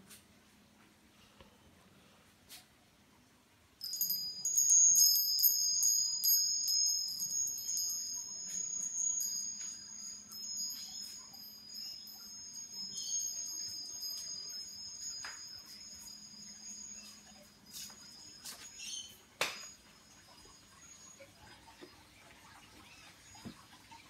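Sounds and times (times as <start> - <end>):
metal wind chime ringing: 3.8 - 21.6.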